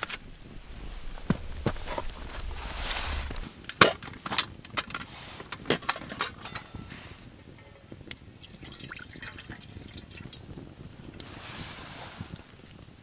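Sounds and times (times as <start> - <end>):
metal cookware clinking: 5.7 - 9.5
water pouring into pot: 7.7 - 11.9.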